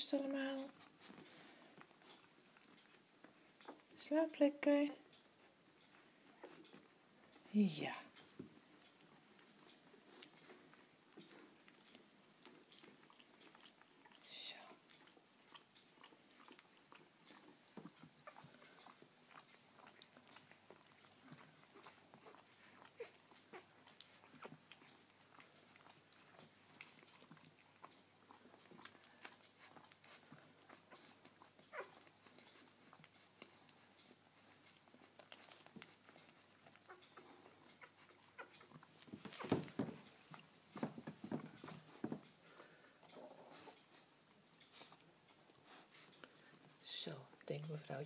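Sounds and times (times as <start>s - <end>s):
rustling: 0.0s - 4.1s, 5.0s - 47.8s
puppies nursing smacking: 0.0s - 48.0s.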